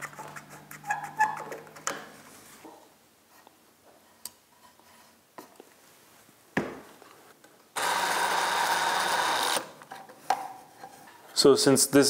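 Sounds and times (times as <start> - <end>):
cordless drill driving screw: 7.8 - 9.7.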